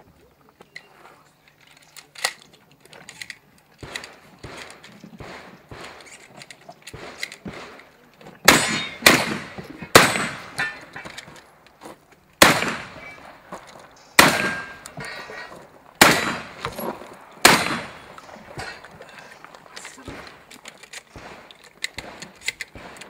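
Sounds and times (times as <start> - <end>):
shotgun shots with echo: 3.8 - 6.2, 6.9 - 11.1, 12.4 - 13.4, 14.2 - 15.4, 16.0 - 18.9, 21.1 - 23.0.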